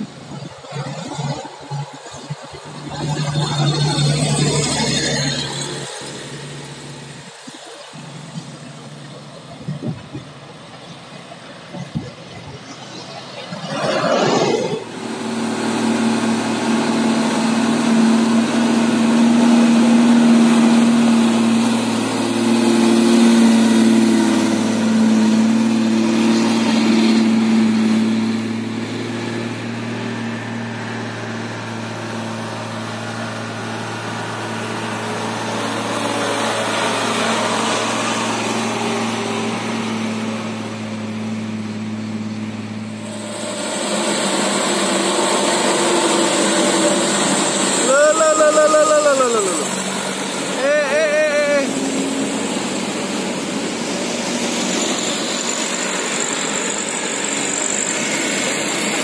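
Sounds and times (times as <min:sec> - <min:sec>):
road noise: 0:00.0 - 0:59.0
truck engine running: 0:00.0 - 0:59.0.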